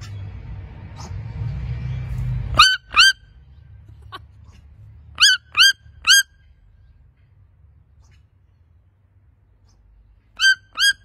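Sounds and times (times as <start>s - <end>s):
toucan yelping calls: 2.6s - 3.2s, 5.1s - 6.4s, 10.4s - 11.0s.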